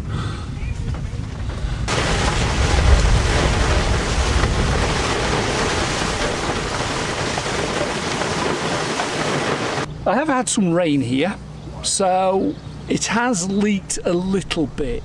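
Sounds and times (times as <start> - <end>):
thunder rumbling: 0.5 - 9.9
heavy rain on car roof: 1.9 - 9.9.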